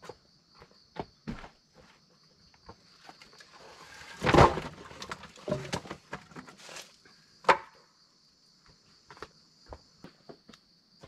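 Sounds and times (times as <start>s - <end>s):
crickets chirping: 0.0s - 11.0s
firewood knocking and clattering: 4.1s - 6.6s.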